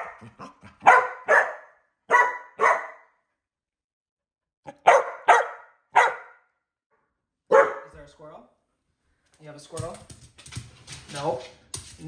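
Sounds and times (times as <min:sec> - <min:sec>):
dog barking sharply: 0:00.8 - 0:03.1, 0:04.7 - 0:06.5, 0:07.5 - 0:07.9.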